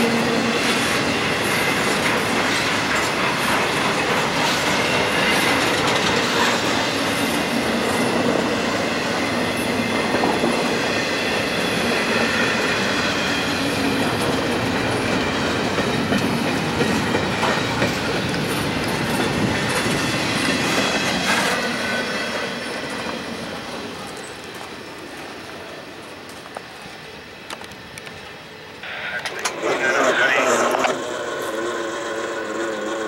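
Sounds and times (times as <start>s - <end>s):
freight train rumbling past: 0.0s - 33.0s
wheels clickety-clack: 0.1s - 8.4s, 11.9s - 21.7s, 29.3s - 33.0s
high wheel squeal: 28.8s - 33.0s.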